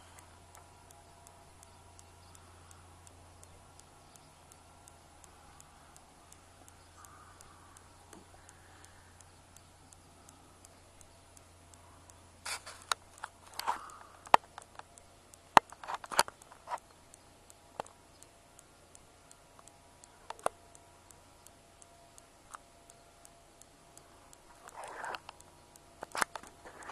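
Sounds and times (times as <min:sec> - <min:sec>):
faint low hum: 0:00.0 - 0:26.9.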